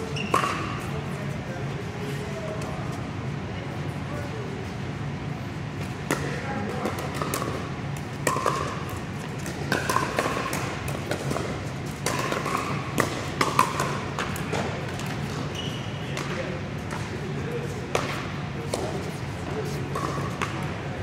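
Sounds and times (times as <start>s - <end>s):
ball bouncing on court: 0.2s - 0.9s, 6.0s - 17.2s, 17.8s - 19.0s, 19.9s - 21.0s
ball popping off hard paddles: 6.0s - 17.1s.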